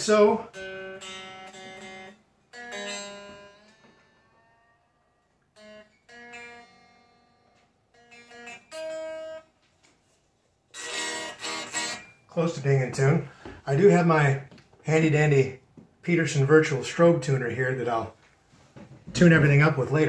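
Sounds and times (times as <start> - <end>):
electric guitar strings plucked: 0.0 - 9.5, 10.8 - 13.1
strummed guitar chord: 0.0 - 9.5, 10.8 - 12.2
guitar note sliding up in pitch: 10.8 - 12.2.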